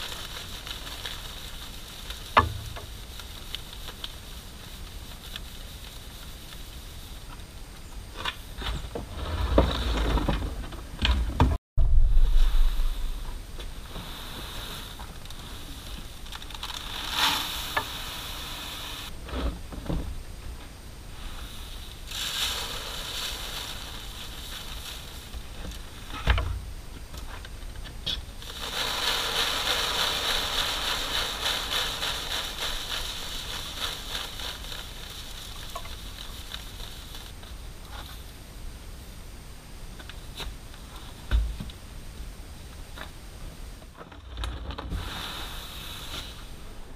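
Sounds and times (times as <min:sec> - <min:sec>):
grain rustling on plastic: 0:00.0 - 0:07.2, 0:12.2 - 0:19.1, 0:21.0 - 0:26.2, 0:27.3 - 0:38.3.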